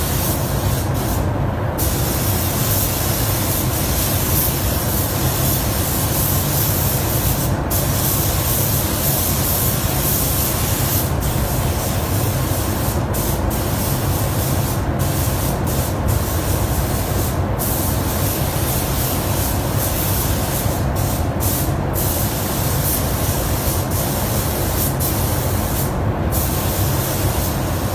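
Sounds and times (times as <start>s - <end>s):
paint spray gun hissing: 0.0s - 1.2s, 1.8s - 27.9s
ventilation rumble: 0.0s - 27.9s.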